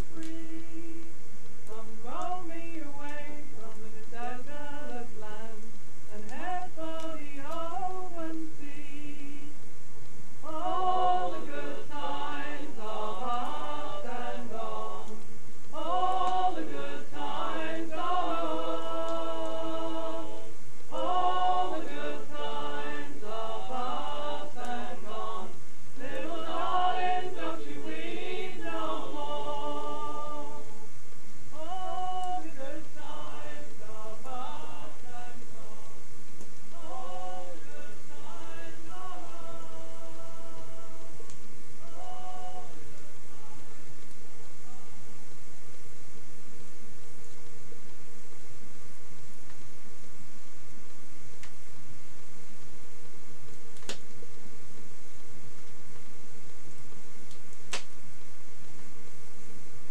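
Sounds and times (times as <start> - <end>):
voices singing together: 0.0 - 9.6, 10.4 - 45.1.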